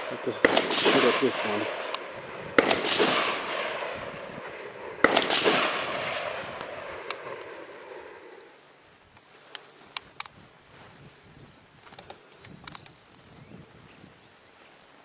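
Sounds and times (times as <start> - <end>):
rifle shots with rolling echo: 0.0 - 8.6
faint clicks: 9.1 - 10.4, 11.8 - 13.2.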